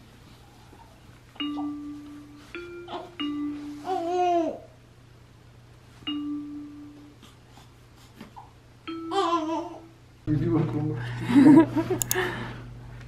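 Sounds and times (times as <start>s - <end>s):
toy chiming note: 1.4s - 4.2s, 6.1s - 7.2s, 8.9s - 10.0s
faint clicks: 12.0s - 12.2s.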